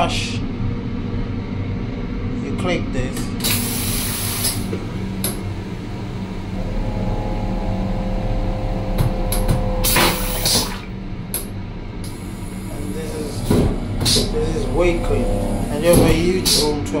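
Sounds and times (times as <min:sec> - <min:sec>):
train rumble: 0:00.0 - 0:17.0
toilet pump whine: 0:03.4 - 0:17.0
rinse water hissing: 0:06.3 - 0:10.9, 0:12.0 - 0:16.8
vacuum toilet suction whoosh: 0:06.5 - 0:10.9, 0:12.1 - 0:16.8.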